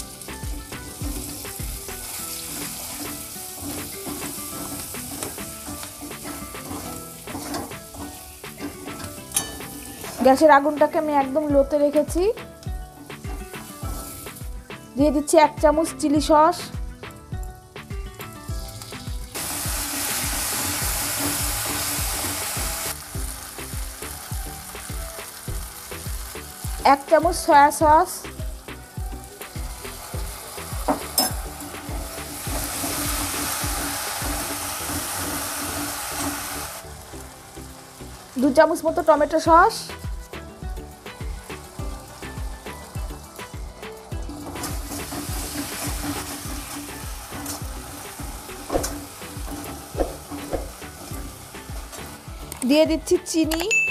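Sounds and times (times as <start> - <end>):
background music with beat: 0.0 - 38.2, 39.5 - 53.9
vegetables sizzling in oil: 0.0 - 53.7
metal spatula in wok: 0.6 - 10.6, 20.0 - 23.0, 44.3 - 52.3
metal spatula scraping pan: 2.5 - 10.3.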